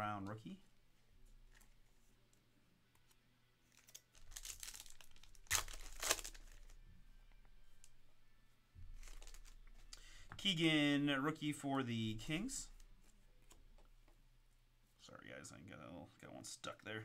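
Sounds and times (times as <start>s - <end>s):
foil wrapper crinkling: 3.7s - 6.8s, 9.0s - 9.6s
foil ripping: 3.8s - 6.7s.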